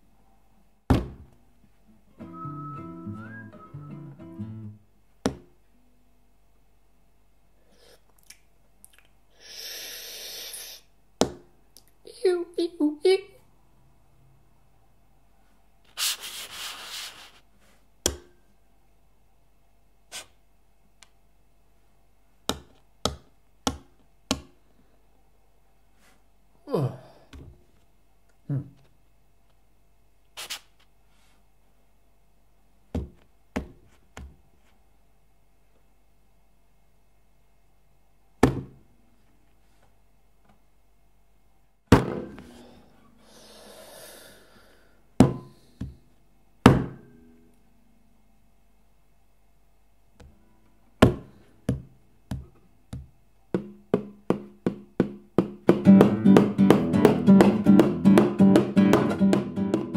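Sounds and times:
sharp hand taps: 51.0 - 59.9.

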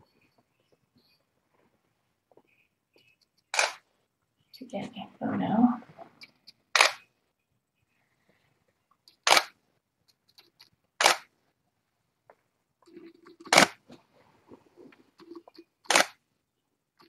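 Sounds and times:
camera shutter clicking: 3.5 - 3.8, 6.7 - 7.0, 9.2 - 9.6, 11.0 - 11.3, 15.9 - 16.2.

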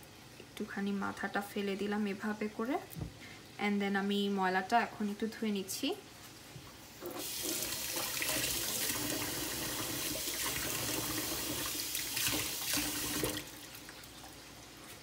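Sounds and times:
kitchen tap running water: 7.0 - 15.0.

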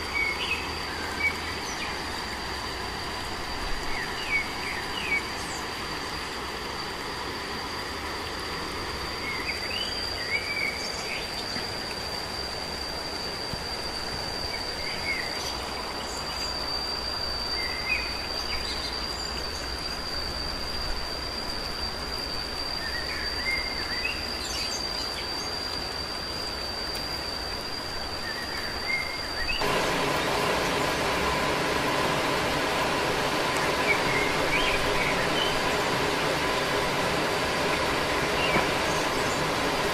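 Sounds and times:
high-pitched insect drone: 0.0 - 39.9
birds chirping: 28.4 - 39.9
running water rushing: 29.6 - 39.9.

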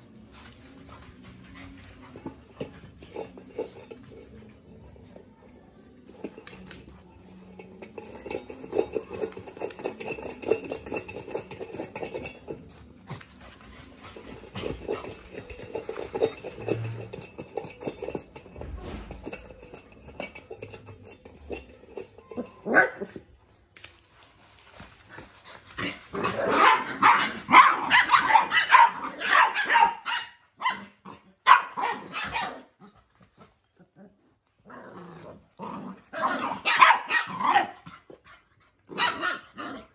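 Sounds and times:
puppies scuffling: 0.0 - 34.6
puppy yaps and barks: 26.6 - 30.9.

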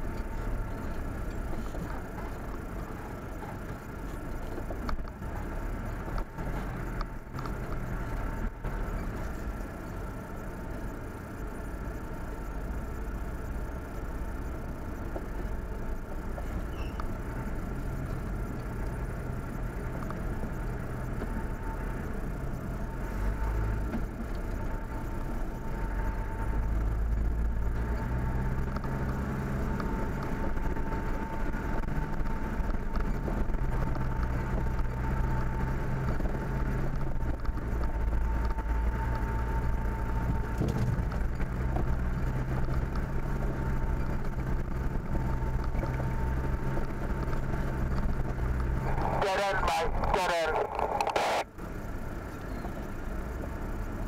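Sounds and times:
engine low hum: 0.0 - 54.0
thin steady whine: 48.7 - 51.6.

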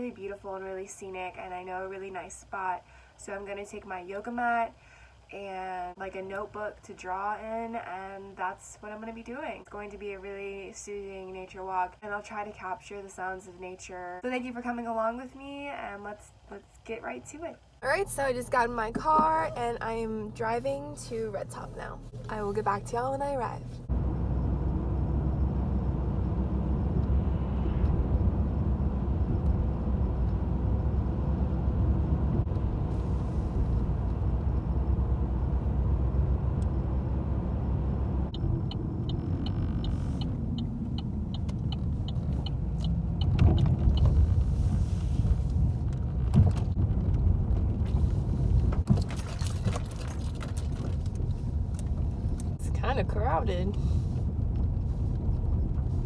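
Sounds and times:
car engine and tyre rumble: 17.7 - 56.0.

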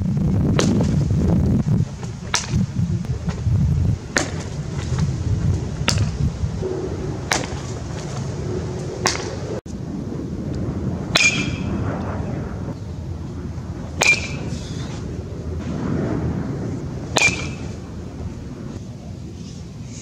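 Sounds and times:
outdoor background noise: 0.0 - 20.0
baseball bat hitting ball: 4.1 - 5.1, 5.8 - 6.2, 7.2 - 8.2, 9.0 - 9.4, 11.1 - 11.7, 14.0 - 14.5, 17.1 - 17.8.

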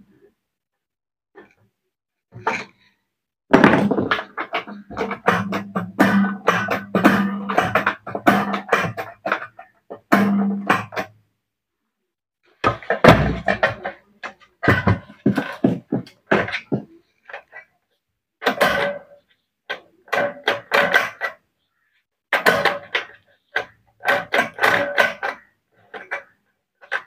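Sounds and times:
metal parts knocking and clattering: 3.5 - 11.1, 18.4 - 21.4, 22.3 - 27.0.

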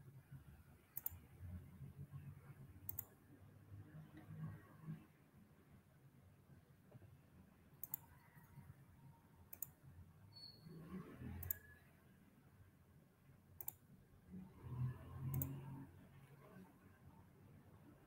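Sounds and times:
faint low noise: 0.0 - 10.3, 11.0 - 18.0
computer mouse clicking: 0.9 - 1.2, 2.8 - 3.2, 7.8 - 8.6, 9.5 - 9.8, 11.0 - 11.8, 13.6 - 13.8, 15.2 - 15.7.

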